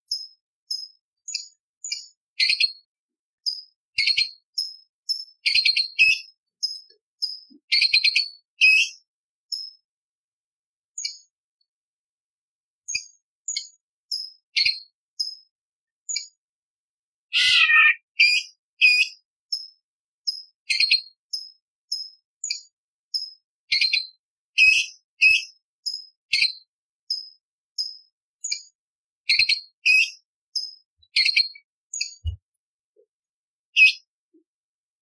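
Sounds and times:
bird singing whistled notes: 0.1s - 9.8s, 17.4s - 28.6s, 29.3s - 32.4s, 33.8s - 34.1s.

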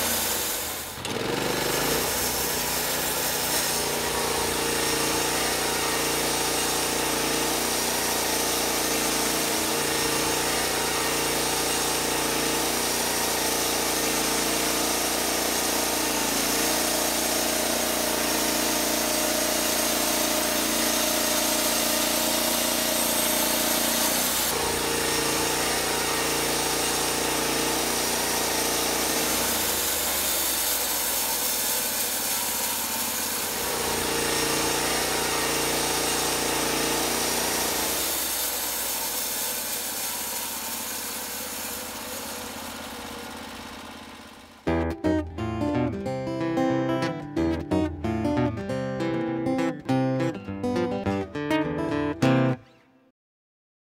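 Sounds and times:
band blade hissing through log: 12.7s - 42.4s.

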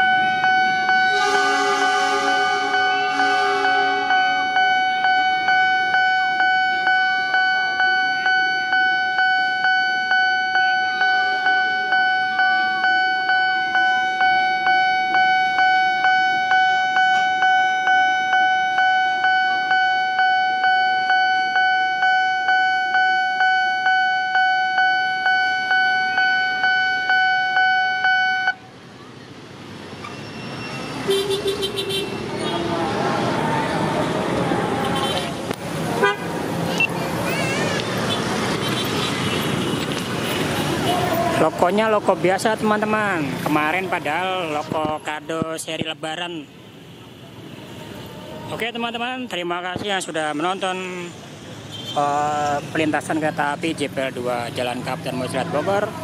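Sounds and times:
level crossing warning bell: 0.0s - 28.6s
faint road traffic: 0.0s - 56.0s.

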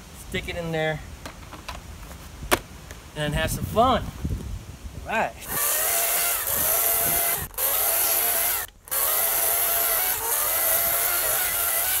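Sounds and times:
electric chainsaw cutting log: 5.4s - 12.0s.

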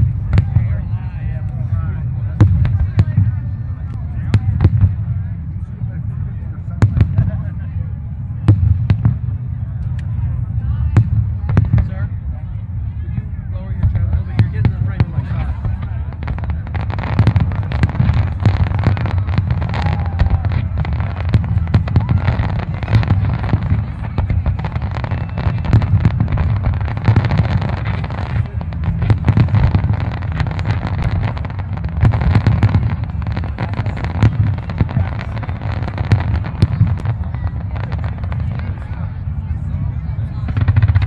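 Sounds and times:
fireworks cracking: 0.0s - 5.5s, 13.8s - 41.0s
low booming: 0.0s - 41.0s.

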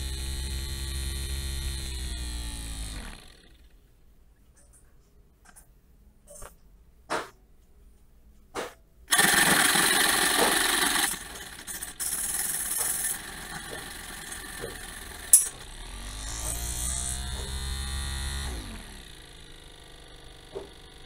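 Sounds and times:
small motor whirring: 0.0s - 3.8s, 9.1s - 21.0s.

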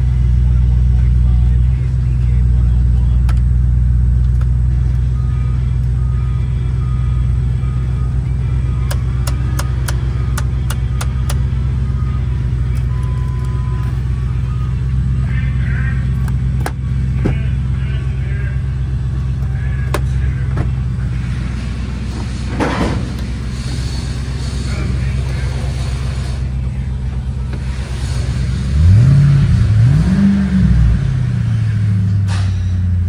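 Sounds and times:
truck engine idling: 0.0s - 33.0s
short beep: 5.1s - 15.6s.

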